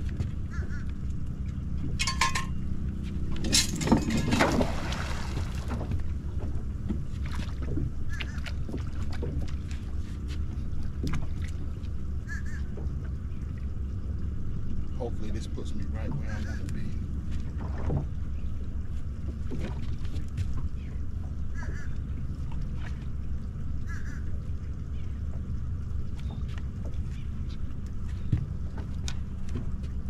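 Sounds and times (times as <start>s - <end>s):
steady low rumble: 0.0s - 30.0s
anchor splashing into water: 3.4s - 6.1s.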